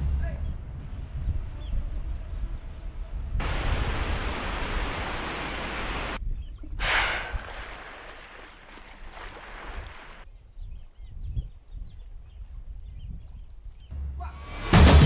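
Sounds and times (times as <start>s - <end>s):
wind rumbling on microphone: 0.0s - 13.9s
loud rushing hiss: 3.4s - 6.2s, 6.8s - 10.2s.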